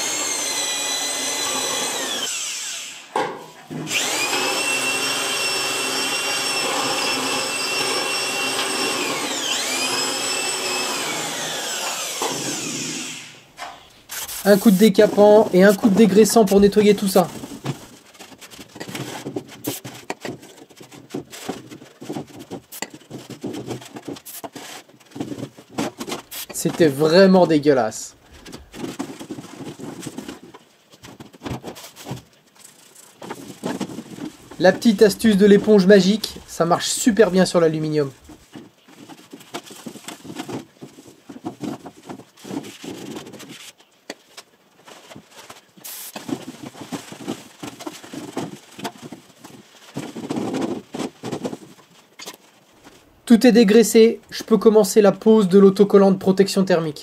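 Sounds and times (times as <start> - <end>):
small knocks and scrapes: 13.6 - 27.5, 28.3 - 36.5, 38.2 - 53.1
hand scrubbing a greasy part: 14.0 - 27.4
sponge scrubbing metal surface: 14.1 - 17.4.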